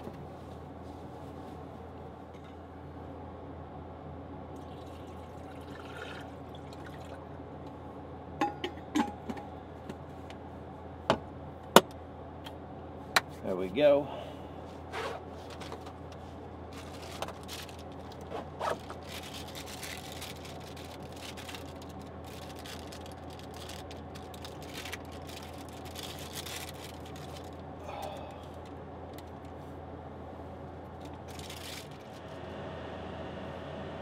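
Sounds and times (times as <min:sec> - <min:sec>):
air conditioner humming: 0:00.0 - 0:34.0
rustling: 0:14.9 - 0:27.6, 0:31.1 - 0:32.2.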